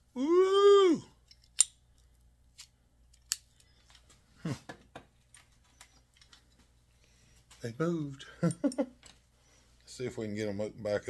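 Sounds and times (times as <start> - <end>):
metal pliers clicks: 1.2 - 3.7.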